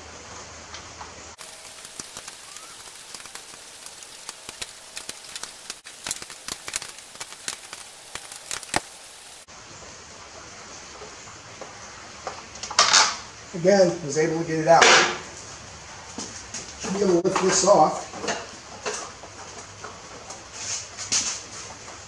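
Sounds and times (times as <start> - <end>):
soft hiss: 1.4 - 10.7.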